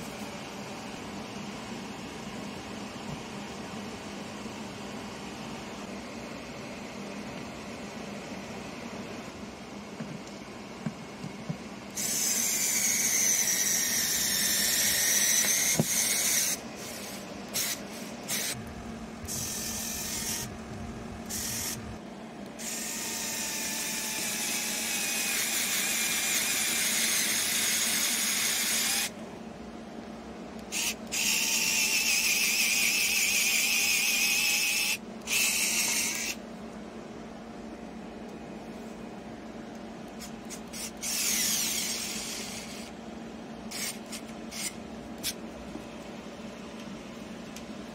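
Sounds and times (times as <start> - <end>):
cordless screwdriver motor whining: 12.0 - 18.6, 19.3 - 20.5, 21.3 - 21.9, 22.6 - 29.1, 30.7 - 36.4, 40.5 - 42.9, 43.7 - 45.4.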